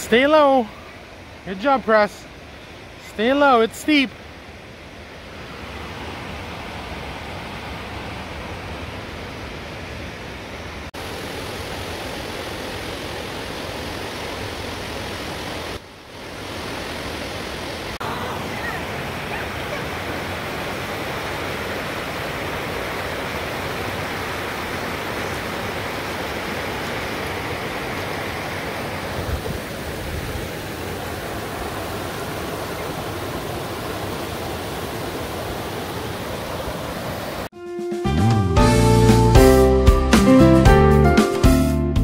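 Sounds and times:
creek rushing over rocks: 0:00.0 - 0:37.5.

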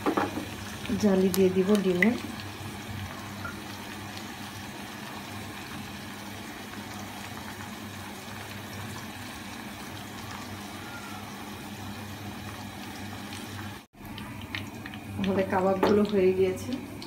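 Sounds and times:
patties sizzling in hot oil: 0:00.0 - 0:17.0.

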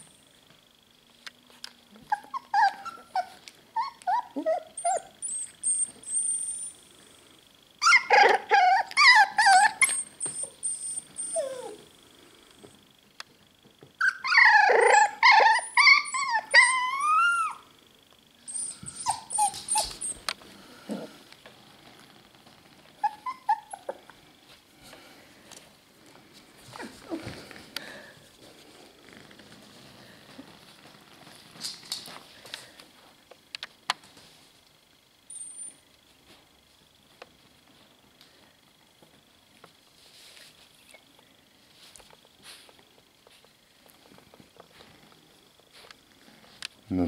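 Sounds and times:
puppies whining and yelping: 0:02.0 - 0:06.8, 0:07.8 - 0:11.9, 0:14.0 - 0:17.7, 0:18.5 - 0:20.3, 0:23.0 - 0:24.2, 0:26.7 - 0:27.5.

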